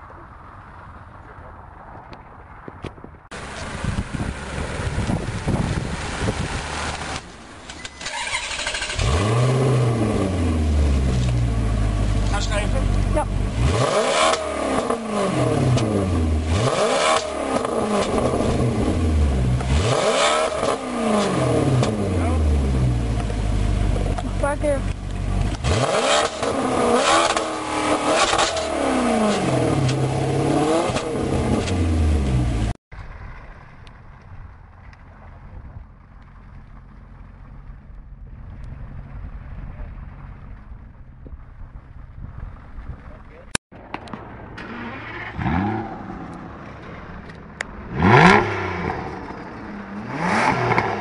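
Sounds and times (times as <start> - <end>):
car engine revving: 3.3 - 35.4, 43.8 - 51.0.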